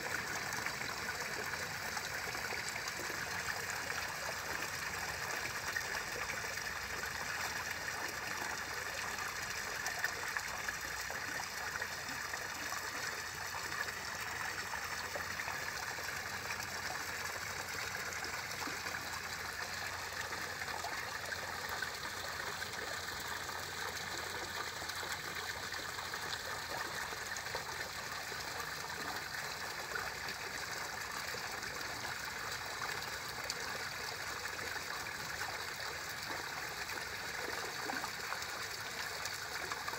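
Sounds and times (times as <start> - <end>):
water trickling into pond: 0.0 - 39.9.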